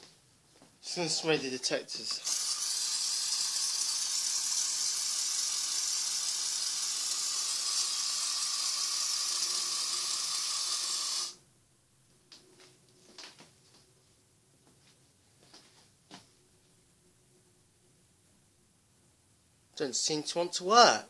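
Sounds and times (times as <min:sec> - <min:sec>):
aerosol spray hissing: 0:02.0 - 0:11.4.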